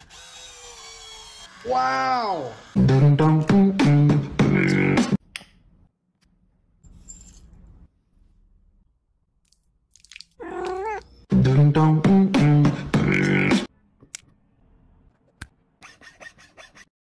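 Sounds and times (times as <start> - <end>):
meowing tune with a beat: 2.8 - 5.2, 10.7 - 13.7
cat meowing: 10.4 - 11.1.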